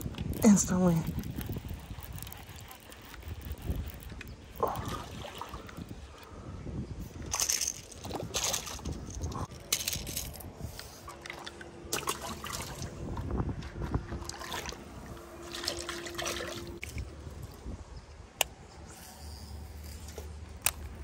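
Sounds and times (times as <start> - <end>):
water splashing and dribbling: 0.0 - 6.3, 7.1 - 9.9, 10.9 - 17.2.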